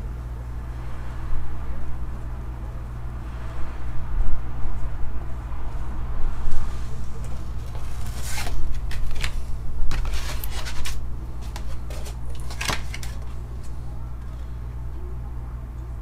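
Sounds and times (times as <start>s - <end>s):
steady low hum: 0.0s - 16.0s
cardboard and plastic rustling: 6.6s - 14.4s.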